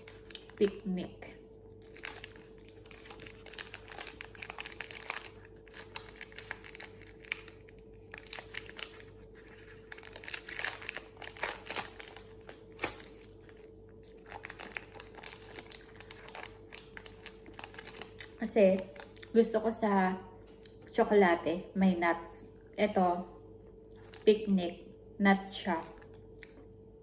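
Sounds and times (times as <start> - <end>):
plastic wrapper crinkling: 0.0 - 19.4, 23.9 - 24.3
faint steady hum: 0.0 - 27.0.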